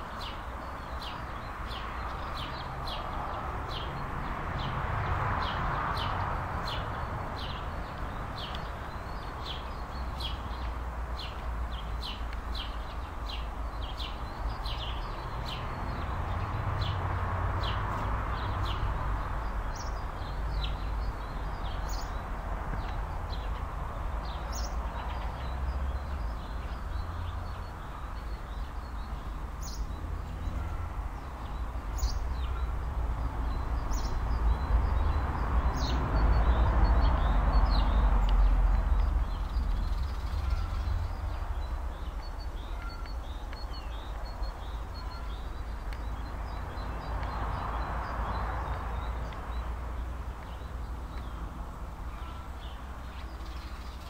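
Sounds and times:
small birds chirping: 0.0s - 54.0s.

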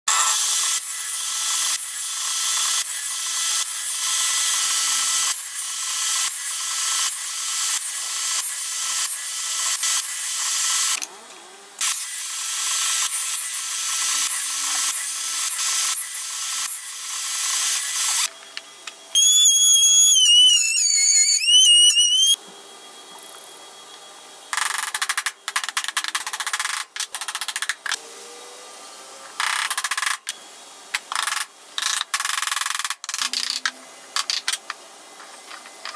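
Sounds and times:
table saw cutting wood: 0.1s - 18.4s
saw blade whine: 11.8s - 25.4s.

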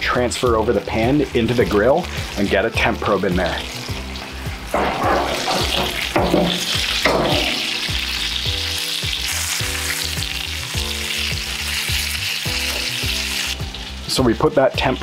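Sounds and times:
chicken sizzling in a skillet: 0.0s - 15.0s
pan knocking on grill grates: 4.6s - 8.6s.

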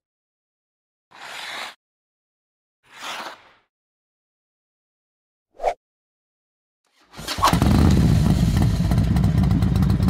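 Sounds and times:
motorcycle engine starting and running: 7.2s - 10.0s.

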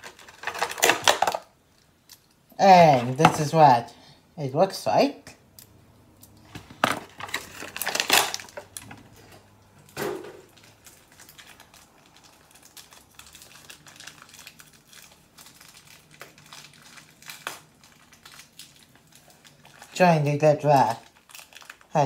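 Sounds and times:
plastic packaging crinkling: 0.0s - 1.8s, 6.4s - 22.0s.

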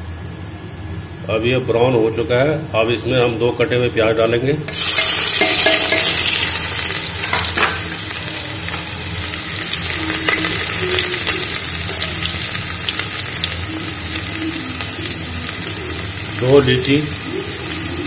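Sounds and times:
onions sizzling in oil: 4.7s - 18.0s.

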